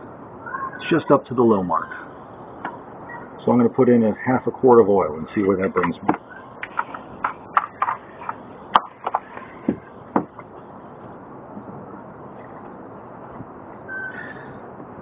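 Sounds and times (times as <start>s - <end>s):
wind noise on microphone: 9.1s - 10.4s, 11.0s - 15.0s.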